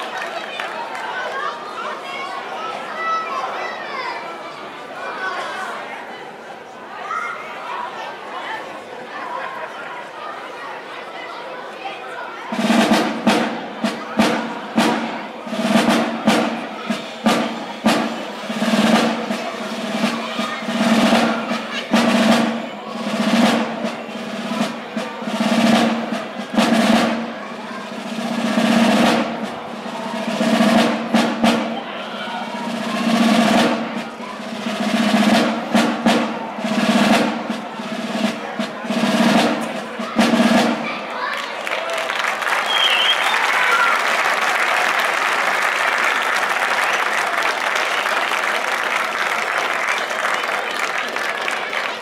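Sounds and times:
side drums playing march: 0:12.5 - 0:41.2.

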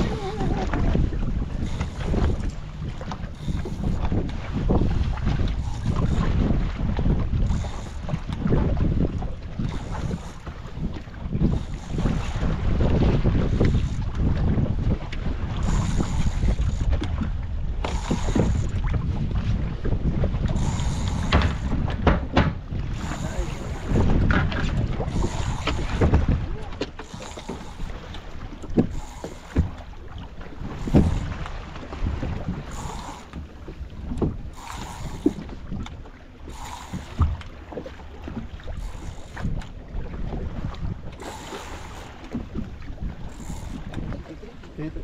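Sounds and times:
wind rumbling on microphone: 0:00.0 - 0:45.0
knocks on boat: 0:21.2 - 0:23.0, 0:23.9 - 0:25.0, 0:25.6 - 0:27.6, 0:28.6 - 0:29.9, 0:30.8 - 0:31.2
short knocks: 0:21.3 - 0:22.6.

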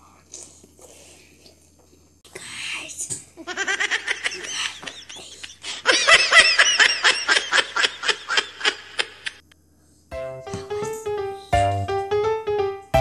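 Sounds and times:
high-pitched laughter: 0:03.4 - 0:09.4.

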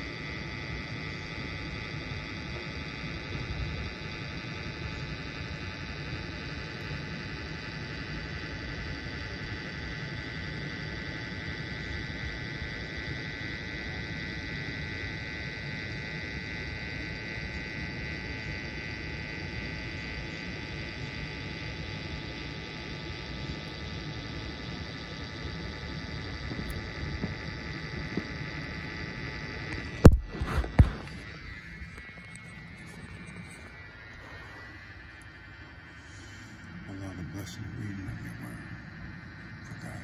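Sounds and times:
constant high whine: 0:00.0 - 0:40.0
steady hum and hiss: 0:00.0 - 0:40.0.

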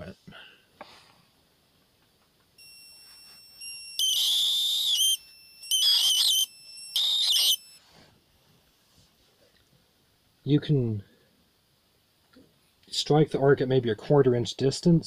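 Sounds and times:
high-pitched circuit whine: 0:02.6 - 0:07.8
harsh buzzing arc hiss: 0:02.6 - 0:07.9.

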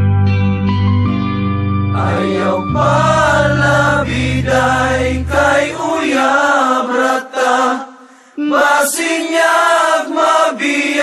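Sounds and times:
low backing accompaniment: 0:00.0 - 0:06.7.

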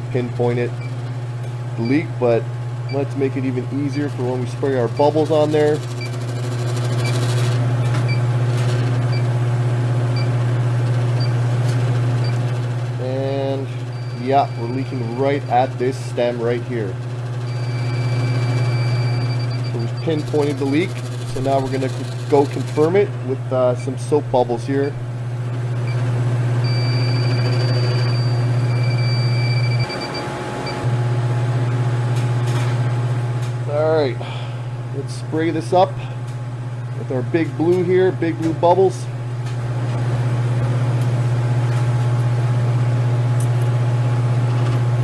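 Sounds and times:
steady low hum: 0:00.0 - 0:45.0
leak detector beeping: 0:02.9 - 0:03.1, 0:04.8 - 0:05.2, 0:05.9 - 0:07.4, 0:08.0 - 0:08.3, 0:11.2 - 0:11.4, 0:13.8 - 0:15.2, 0:17.4 - 0:21.8, 0:25.8 - 0:30.9
high alarm tone: 0:17.4 - 0:19.8, 0:26.6 - 0:30.8.

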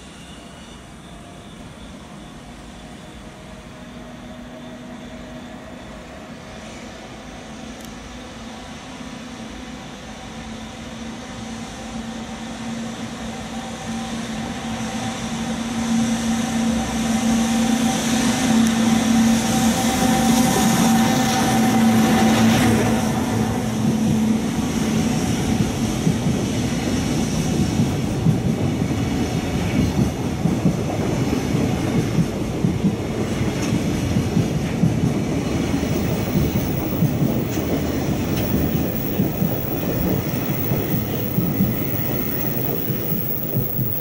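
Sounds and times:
freight train approaching: 0:00.0 - 0:44.0
wheel-on-rail hiss: 0:33.2 - 0:44.0.

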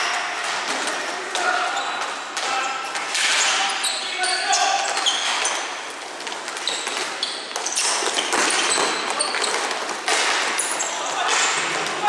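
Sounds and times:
high squeaks: 0:01.4 - 0:05.8, 0:06.6 - 0:09.7.

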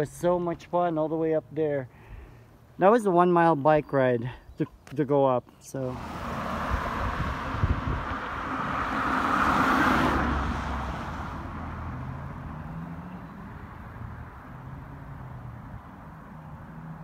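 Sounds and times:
car driving past: 0:05.8 - 0:17.0.

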